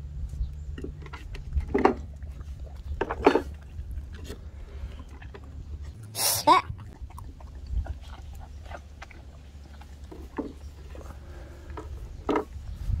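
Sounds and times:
low steady rumble: 0.0 - 13.0
dog licking and chewing: 1.2 - 11.3.

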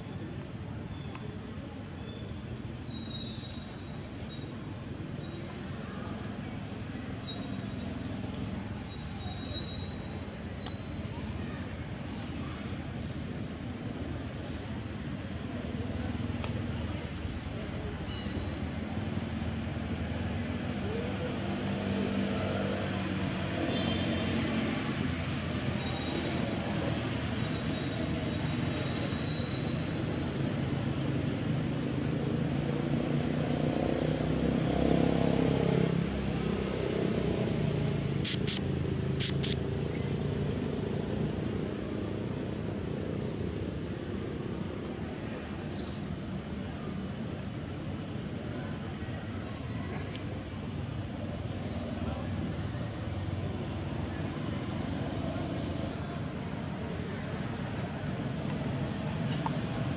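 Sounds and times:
sharp clicks: 38.2 - 38.6, 39.2 - 39.6
bird chirping: 38.2 - 40.6.

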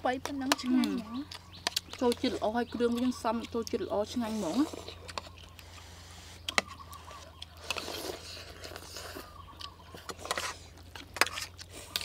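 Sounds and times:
chewing: 0.2 - 12.0
slurping noodles: 7.6 - 9.4.

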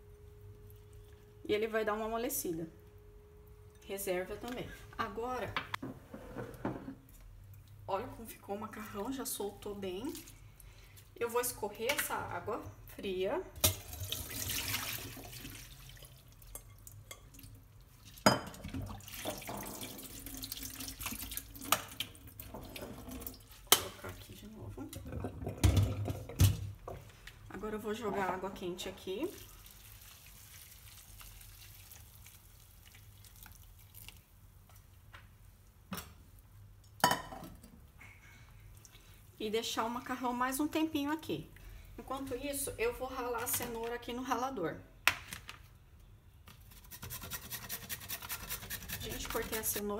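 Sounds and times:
hot water trickling and dripping: 13.6 - 26.1, 29.1 - 35.0.

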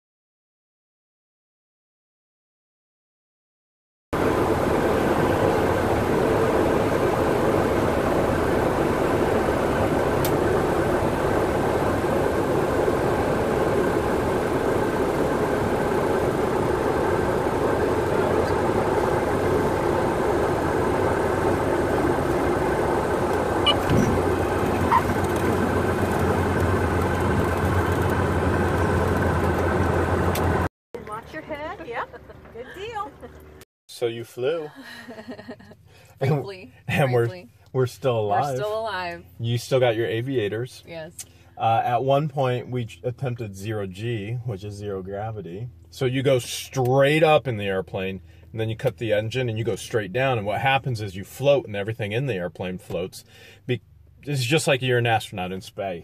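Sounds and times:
propeller plane engine running: 4.2 - 33.6, 40.1 - 51.4.

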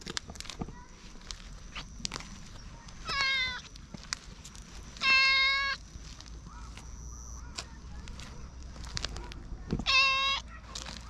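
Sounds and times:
cat meowing: 3.0 - 3.7, 5.0 - 5.8, 9.8 - 10.5.

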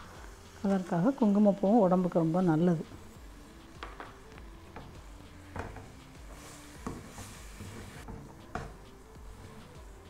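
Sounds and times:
ladle scraping a pan: 6.3 - 8.4.

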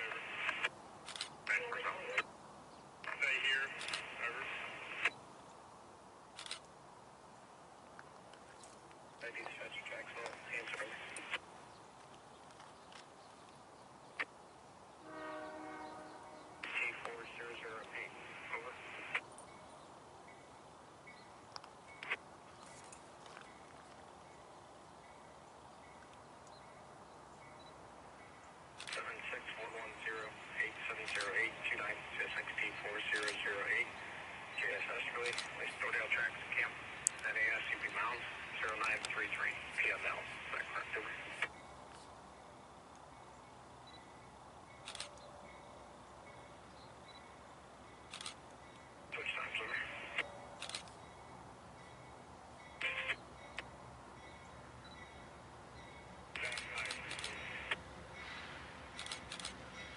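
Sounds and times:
distant freight train approaching: 15.0 - 19.7, 51.0 - 59.9.

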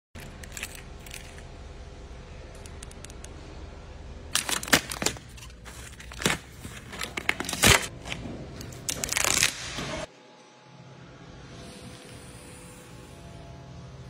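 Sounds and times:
plastic film crinkling and tearing: 4.4 - 7.9, 8.7 - 10.0.

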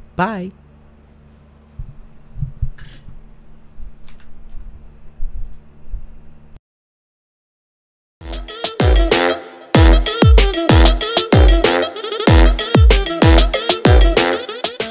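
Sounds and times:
low thumps: 1.8 - 2.8.

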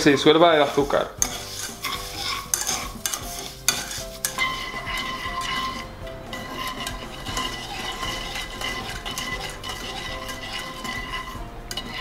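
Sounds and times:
whisk clicking and scraping pan: 0.0 - 12.0.

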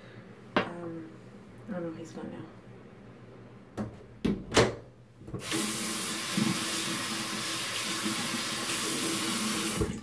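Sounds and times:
sink tap water running: 5.4 - 10.0.

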